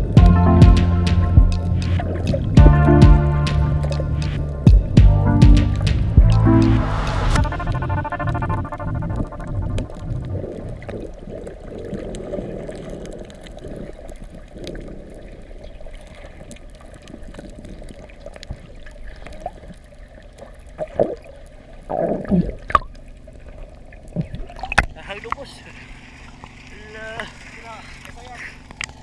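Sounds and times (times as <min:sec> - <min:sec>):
faint underwater clicks: 0:00.0 - 0:02.8, 0:09.4 - 0:29.0
muffled underwater churning: 0:00.0 - 0:29.0
water sloshing surges: 0:22.5 - 0:29.0.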